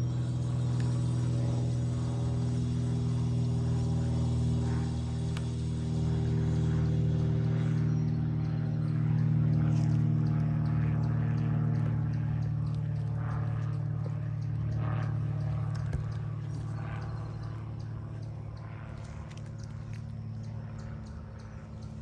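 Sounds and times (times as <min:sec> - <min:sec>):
farm machinery engine drone: 0:00.0 - 0:22.0
faint clicks: 0:08.1 - 0:22.0.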